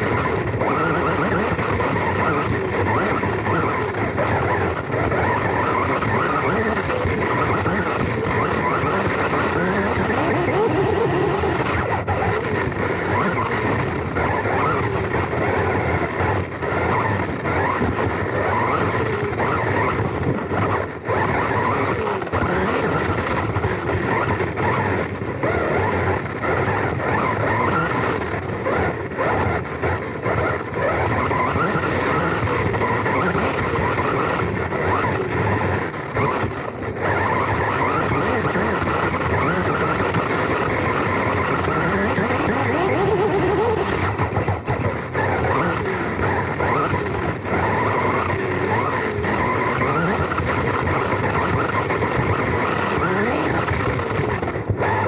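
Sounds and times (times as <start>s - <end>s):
chassis and tyres rattling: 0.0s - 55.0s.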